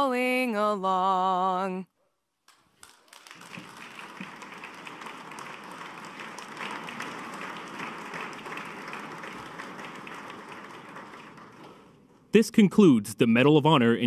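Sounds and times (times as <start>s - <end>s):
audience applauding: 2.8s - 12.4s.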